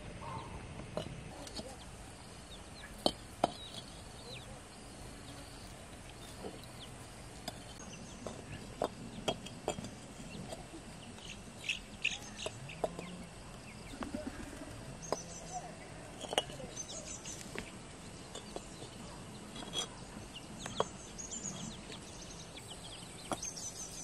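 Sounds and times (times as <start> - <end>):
small birds chirping: 0.0 - 24.0
bricks knocking together: 3.0 - 4.0, 7.4 - 10.8, 16.1 - 17.6.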